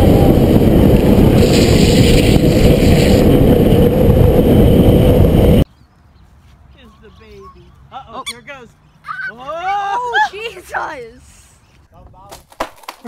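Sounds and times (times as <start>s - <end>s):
wind and road rush: 0.0s - 9.6s.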